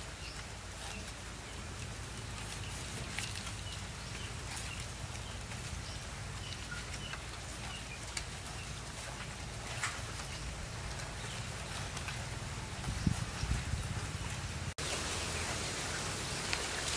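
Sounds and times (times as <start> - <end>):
small birds chirping: 0.0 - 16.9.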